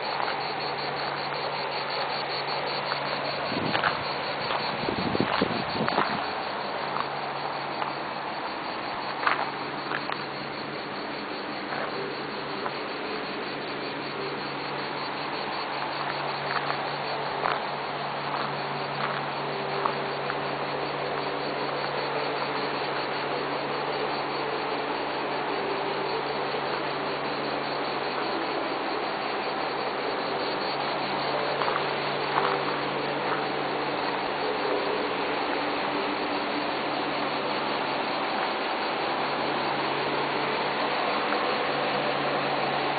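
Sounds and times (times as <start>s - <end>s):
faint ticks: 0.0s - 8.0s, 8.9s - 10.6s, 15.0s - 20.4s, 30.7s - 33.5s
even hiss: 0.0s - 42.9s
insect buzzing: 0.0s - 42.9s.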